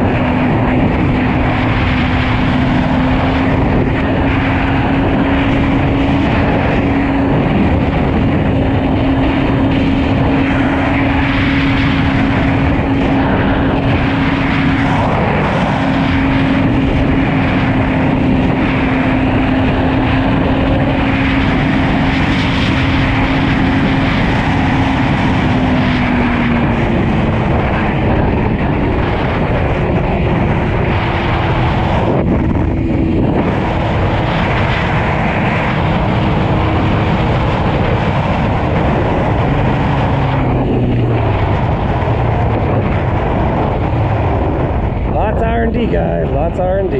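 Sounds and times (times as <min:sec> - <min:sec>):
motorcycle engine cruising: 0:00.0 - 0:46.9
wind rush: 0:00.0 - 0:46.9.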